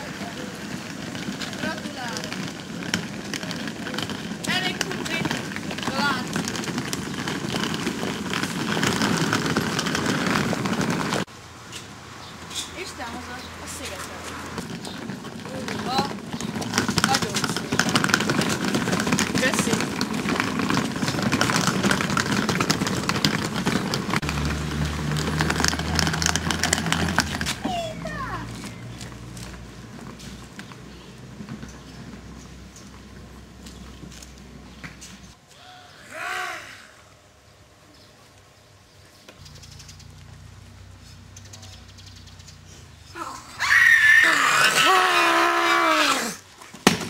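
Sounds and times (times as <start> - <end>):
suitcase wheels on cobblestones: 0.0 - 35.4, 39.3 - 47.0
high-pitched voice crying out: 36.0 - 37.0, 43.2 - 46.4.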